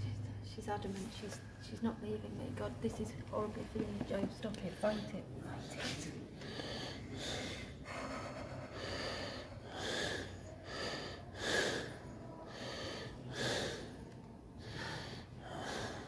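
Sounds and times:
man breathing heavily: 4.7 - 16.0.

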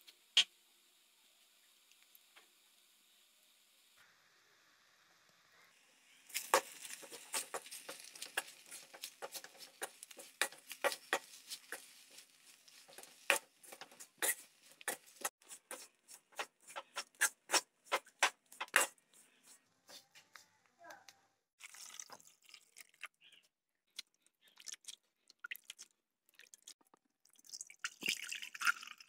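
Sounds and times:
onions frying: 0.0 - 19.6
metal spatula scraping a pan: 6.3 - 19.6.

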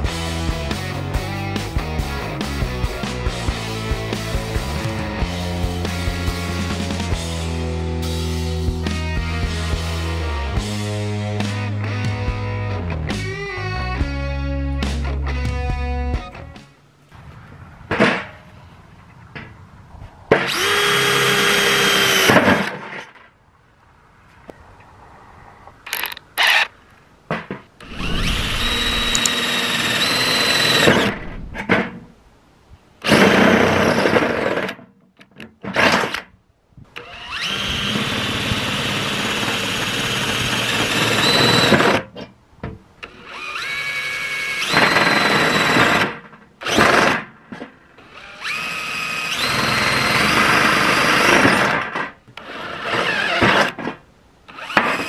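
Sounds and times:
drill whining through sheet metal: 20.4 - 22.7, 27.8 - 31.1, 37.0 - 42.0, 43.1 - 47.1, 48.0 - 53.8, 54.5 - 55.0.

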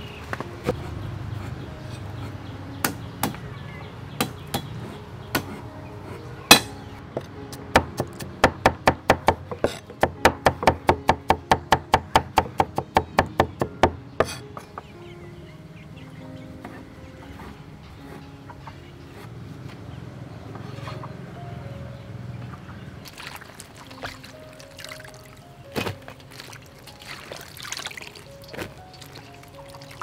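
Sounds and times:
cleaver chopping on wooden board: 2.8 - 3.4, 4.2 - 4.8, 7.5 - 14.7.

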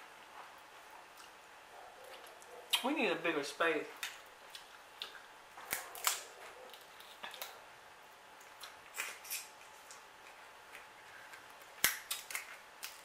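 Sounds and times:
crab shells cracking: 4.0 - 7.6, 8.4 - 13.0.

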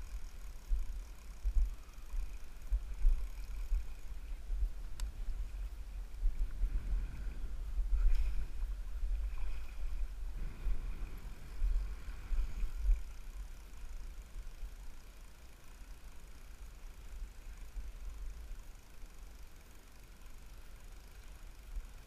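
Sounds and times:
wind buffeting microphone: 0.7 - 13.2.

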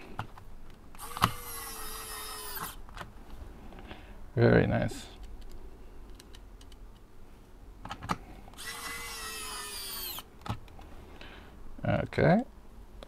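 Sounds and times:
electric screwdriver whirring: 1.0 - 2.8, 8.6 - 10.3.

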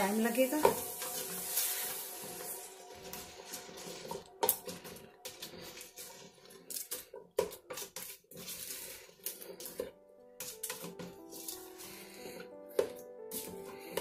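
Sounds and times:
soft background music: 0.0 - 14.0
spatula scraping a metal pot: 0.6 - 14.0.

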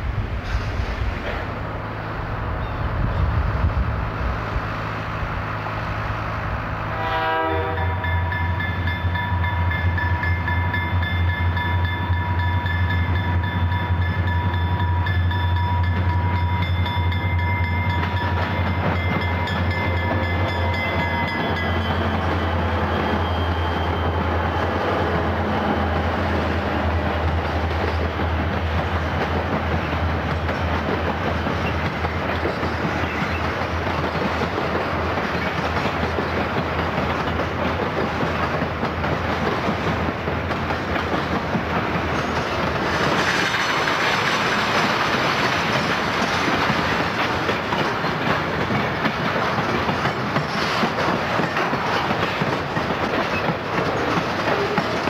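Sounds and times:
rail saw cutting rail: 0.0 - 55.0
locomotive engines droning: 1.0 - 55.0
train horn blast: 6.8 - 8.5
freight cars rumbling and rattling: 17.9 - 55.0.

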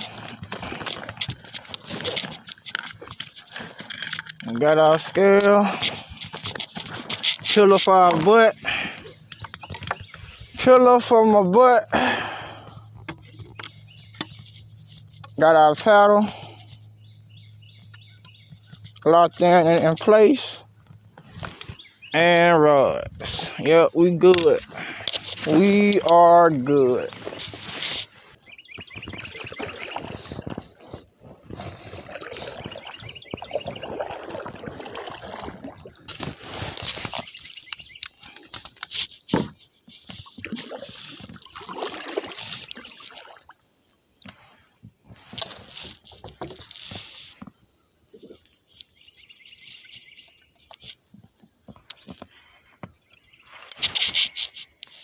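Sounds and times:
water sloshing against hull: 0.0 - 55.0.

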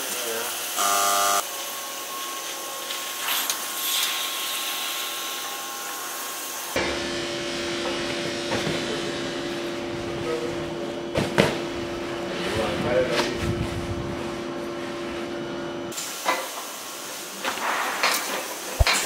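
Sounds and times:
machinery hissing and whirring: 0.0 - 10.5.

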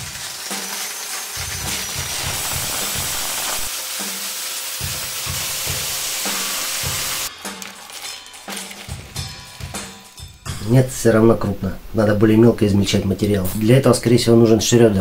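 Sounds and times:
electric drill spinning grinder: 0.0 - 10.1
background music drum beat: 1.5 - 11.3.

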